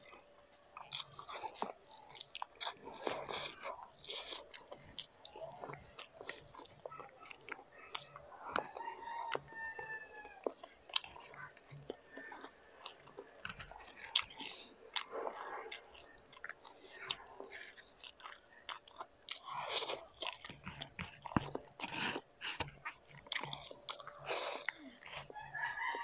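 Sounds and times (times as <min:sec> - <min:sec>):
person chewing crunchy food: 0:00.0 - 0:26.0.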